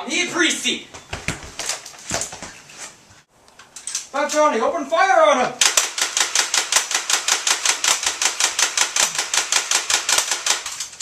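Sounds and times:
rapid automatic gunfire: 0:05.6 - 0:10.8.

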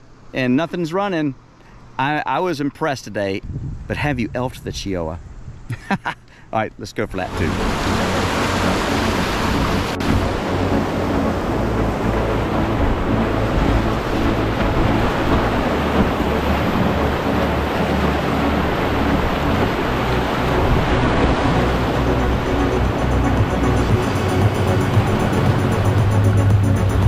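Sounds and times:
whitewater rushing over rocks: 0:07.2 - 0:27.0.

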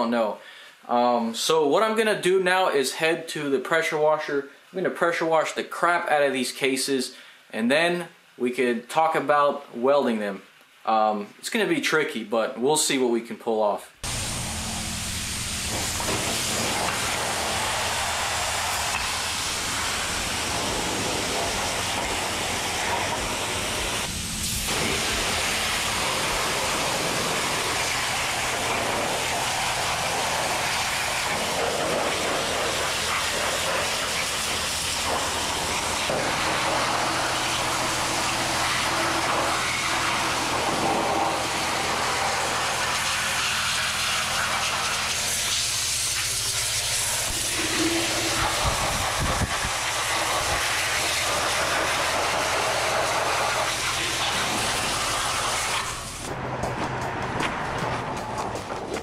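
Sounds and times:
steady low hum: 0:14.0 - 0:39.5
pressure washer spray hiss: 0:14.0 - 0:56.4.

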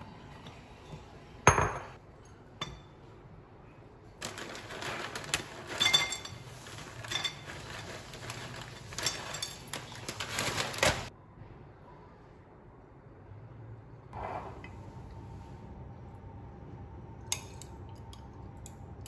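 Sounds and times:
plastic bag crinkling: 0:04.2 - 0:11.1.

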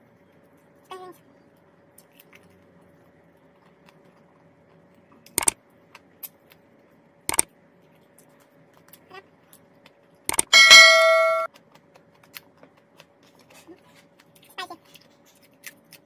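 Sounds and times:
quiet steady hum: 0:00.0 - 0:16.0
sharp mouse clicks: 0:05.3 - 0:05.6, 0:10.3 - 0:10.5.

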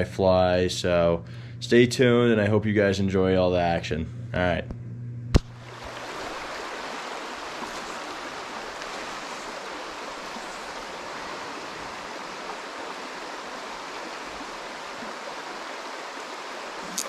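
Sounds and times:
stream rushing over rocks: 0:05.6 - 0:17.0.

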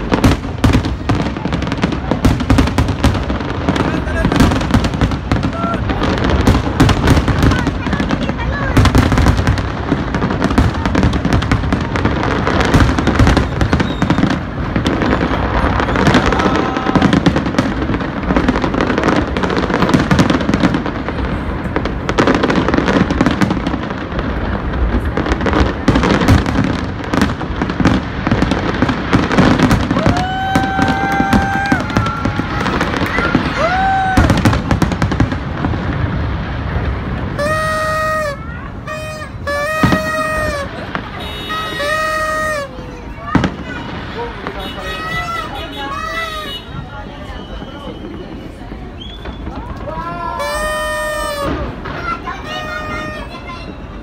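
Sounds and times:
fireworks bangs and crackling: 0:00.0 - 0:54.0
horn blasts: 0:37.4 - 0:42.7.

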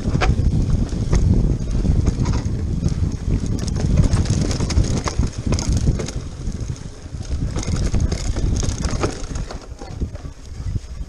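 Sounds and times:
bike knocking and rattling: 0:00.0 - 0:11.0
wind rushing over microphone: 0:00.0 - 0:11.0.

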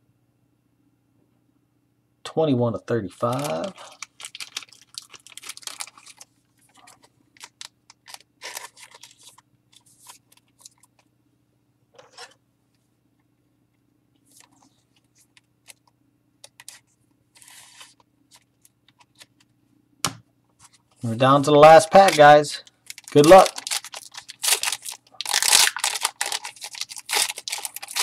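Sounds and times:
faint steady hum: 0:00.0 - 0:28.0
cards and packaging rustling: 0:03.2 - 0:11.1, 0:17.4 - 0:19.5, 0:21.6 - 0:28.0.

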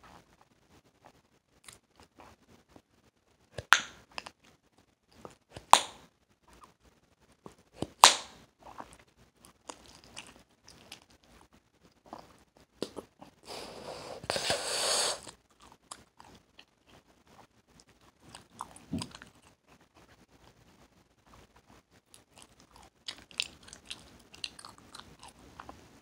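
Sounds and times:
gum chewing smacks: 0:12.0 - 0:13.4, 0:15.2 - 0:20.0, 0:22.1 - 0:25.8
breathy hiss blowing bubble: 0:13.5 - 0:15.3.

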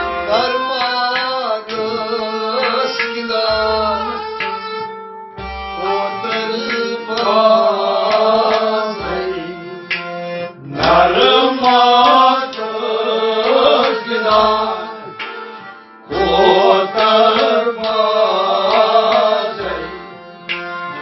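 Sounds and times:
harmonium chords: 0:00.0 - 0:21.0
man singing: 0:00.1 - 0:04.4, 0:05.8 - 0:09.9, 0:10.6 - 0:15.2, 0:16.1 - 0:20.2
plucked rabab: 0:05.5 - 0:21.0.

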